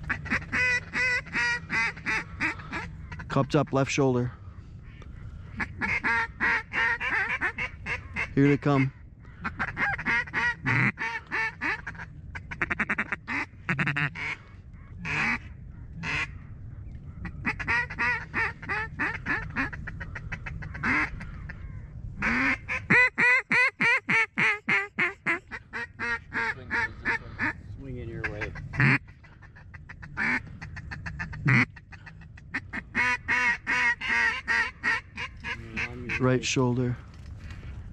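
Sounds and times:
duck call quacks: 0.0s - 3.3s, 5.6s - 14.4s, 15.0s - 16.3s, 17.4s - 21.2s, 22.2s - 27.6s, 28.2s - 36.2s.

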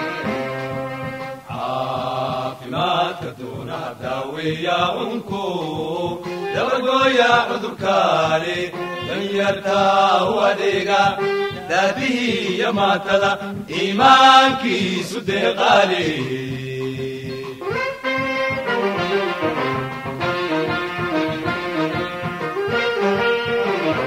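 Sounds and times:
chanted vocal song: 0.2s - 18.2s.

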